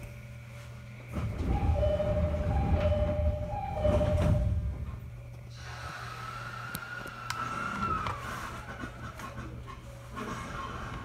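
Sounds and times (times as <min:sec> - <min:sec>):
train rumble: 0:00.0 - 0:11.0
sliding doors thudding: 0:01.1 - 0:05.0
descending two-note door chime: 0:01.5 - 0:04.7.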